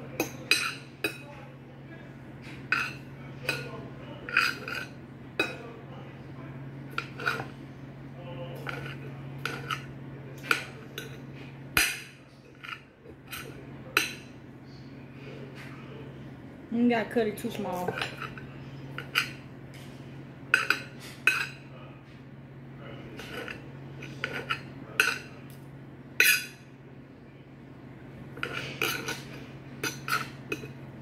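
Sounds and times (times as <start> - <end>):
cutlery scraping a plate: 0.1 - 1.3, 2.4 - 5.7, 6.9 - 7.6, 8.6 - 14.3, 17.7 - 21.6, 23.1 - 25.4, 26.2 - 26.6, 28.4 - 30.8.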